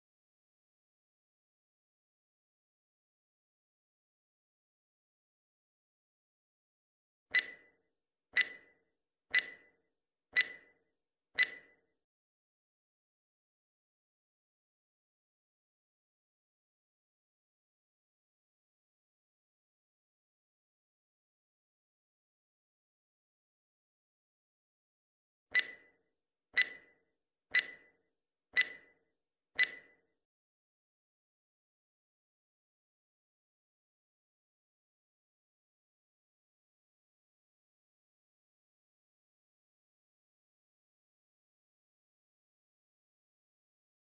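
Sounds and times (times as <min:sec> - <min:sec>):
clock ticks with metallic ring: 0:07.3 - 0:07.8, 0:08.4 - 0:09.8, 0:10.4 - 0:10.8, 0:11.4 - 0:11.8, 0:25.5 - 0:26.0, 0:26.6 - 0:28.0, 0:28.6 - 0:29.0, 0:29.6 - 0:30.0.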